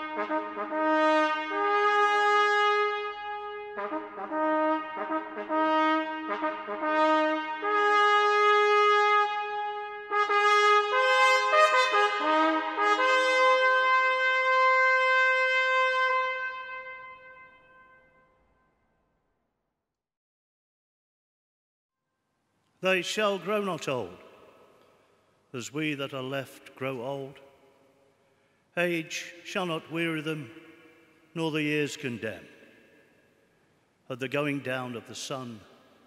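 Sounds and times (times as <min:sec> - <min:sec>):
solo trumpet call: 0:00.0 - 0:18.4.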